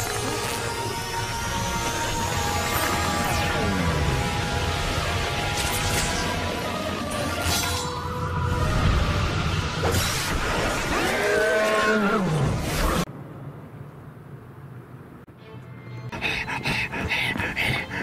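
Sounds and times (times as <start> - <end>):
music: 0.0 - 10.6, 15.3 - 18.0
alien transformation effects: 0.0 - 13.1
beast roaring: 10.9 - 12.6.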